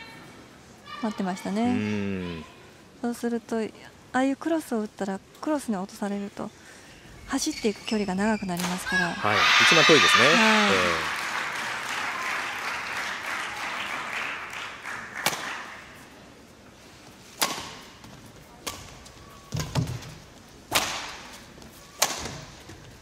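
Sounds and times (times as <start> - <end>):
crowd noise: 9.1 - 16.1
racket striking shuttlecock: 17.4 - 17.9.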